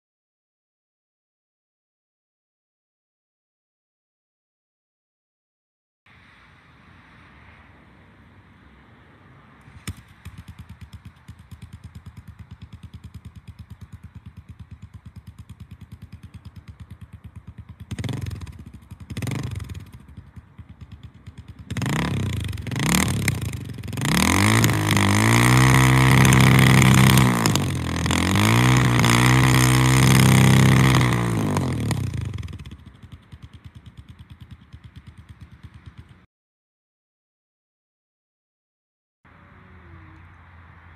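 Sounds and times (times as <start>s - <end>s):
motorcycle engine idling and revving: 9.6s - 36.3s.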